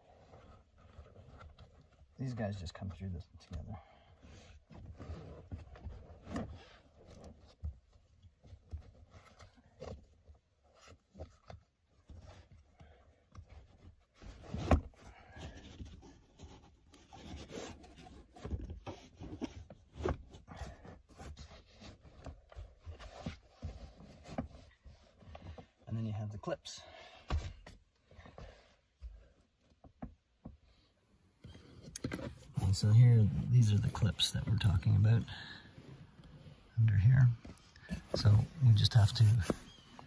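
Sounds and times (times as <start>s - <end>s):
fabric and plastic rubbing: 31.4s - 40.0s.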